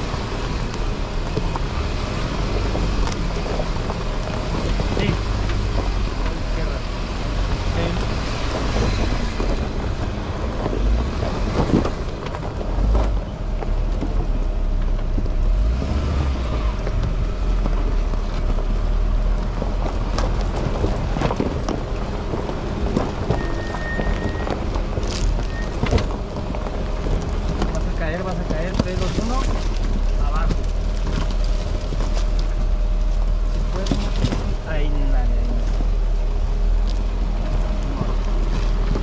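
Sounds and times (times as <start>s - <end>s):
knocks and rattles: 7.4s - 34.7s.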